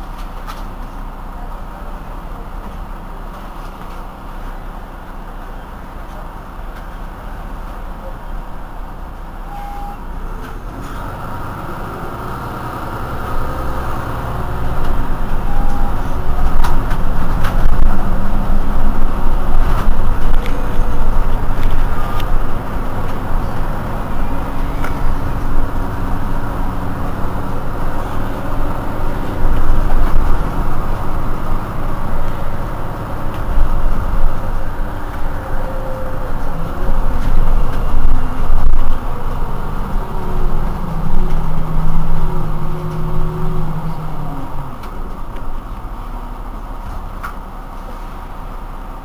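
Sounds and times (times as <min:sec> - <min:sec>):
bus engine idling: 0:00.0 - 0:49.0.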